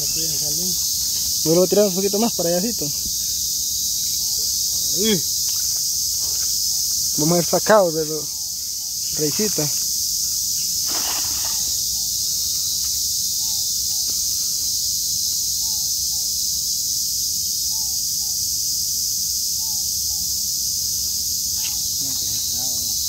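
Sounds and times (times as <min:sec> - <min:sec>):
insect chorus drone: 0:00.0 - 0:23.0
net splashing into water: 0:10.8 - 0:11.8.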